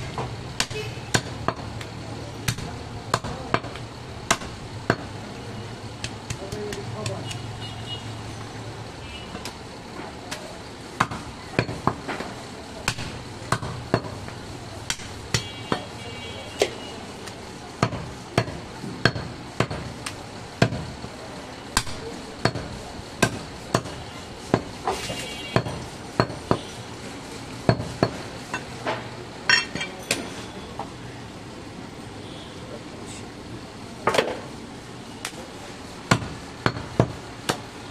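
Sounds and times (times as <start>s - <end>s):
cleaver chopping meat and bone: 0.2s - 5.1s, 6.0s - 7.4s, 11.0s - 12.2s, 12.8s - 14.2s, 14.8s - 15.9s, 17.8s - 20.9s, 21.8s - 25.0s, 36.1s - 37.7s.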